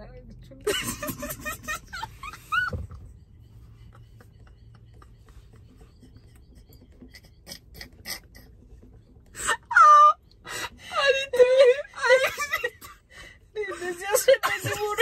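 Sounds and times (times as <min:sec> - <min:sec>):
women laughing: 0:00.6 - 0:15.0.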